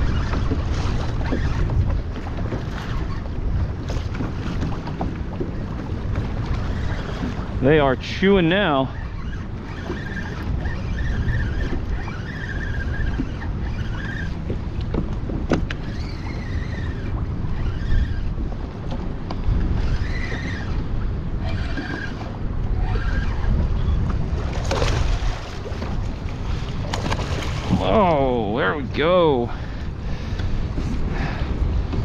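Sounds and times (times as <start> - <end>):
choppy water: 0.0 - 32.0
wind rumble on microphone: 0.0 - 32.0
spinning reel whirring: 6.6 - 14.6, 15.6 - 18.6, 19.4 - 24.2.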